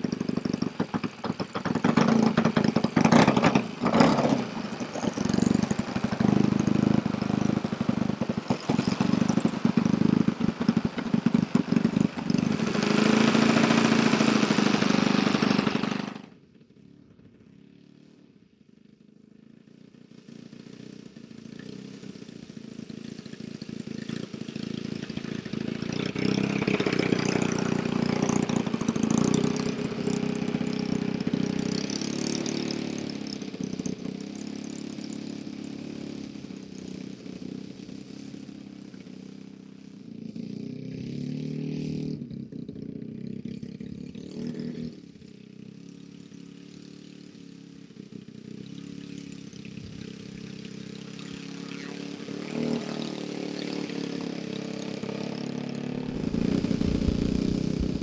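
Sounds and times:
model plane engine pulsing: 0.0 - 16.3, 49.7 - 58.0.

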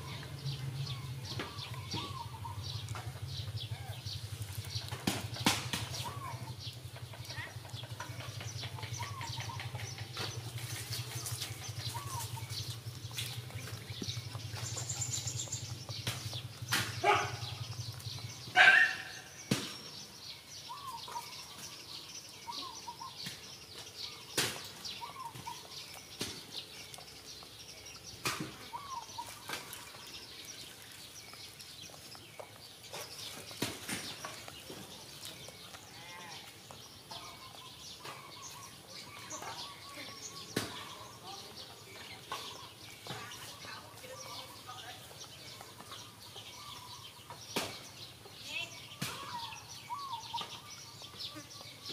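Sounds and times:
cats chewing and crunching: 0.0 - 48.6
bird chirps: 0.0 - 51.9.

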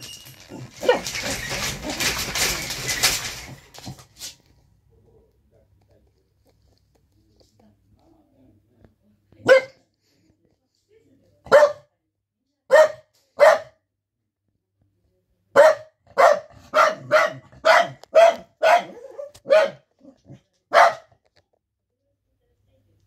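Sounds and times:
dog barking: 0.7 - 1.2, 9.4 - 9.8, 11.5 - 11.9, 12.7 - 13.8, 15.5 - 21.2.

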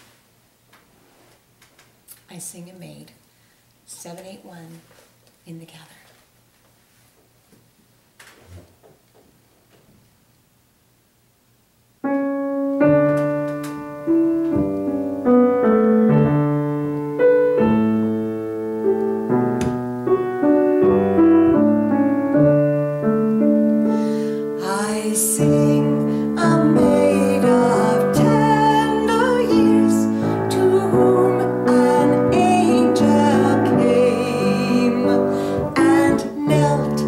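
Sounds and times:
piano playing hymn chords: 12.0 - 37.0
woman singing: 24.6 - 37.0.

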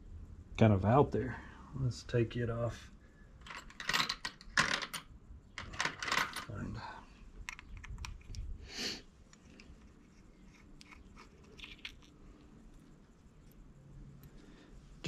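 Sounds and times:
plastic housing clicking and rattling: 3.4 - 6.5, 7.4 - 8.5, 9.3 - 12.8.

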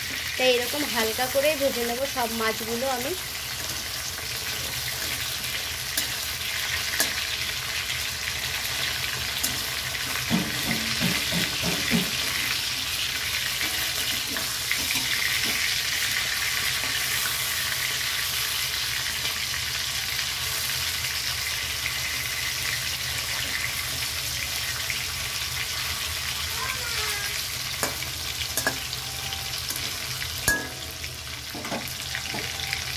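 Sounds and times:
fish sizzling in hot oil: 0.0 - 32.9
metal spatula scraping a pan: 3.2 - 18.4.

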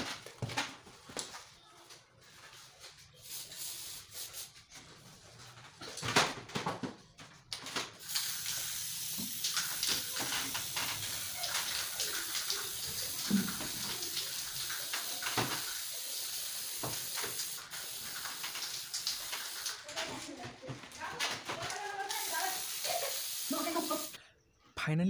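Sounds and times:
aerosol spray can hissing: 3.2 - 4.5, 8.0 - 19.8, 22.0 - 24.2.

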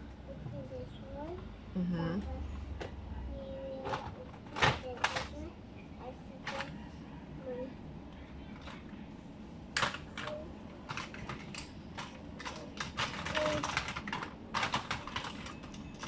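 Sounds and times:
plastic toy pieces clattering: 9.8 - 16.0.

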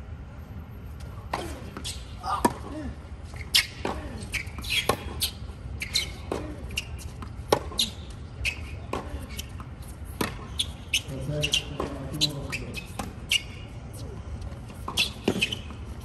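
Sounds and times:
tennis shoes squeaking: 1.0 - 16.0
tennis ball hitting racket: 1.3 - 2.7, 3.5 - 13.3, 14.8 - 15.8.

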